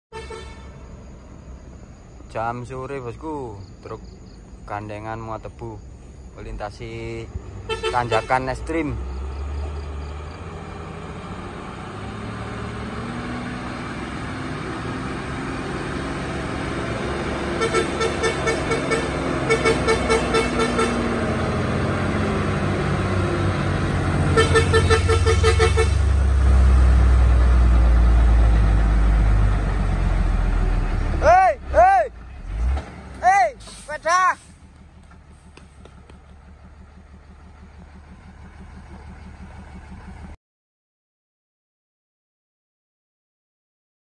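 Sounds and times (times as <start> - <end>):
truck diesel engine climbing: 0.2 - 40.4
rapidly pulsing horn: 7.7 - 8.6, 17.6 - 21.1, 24.3 - 26.1.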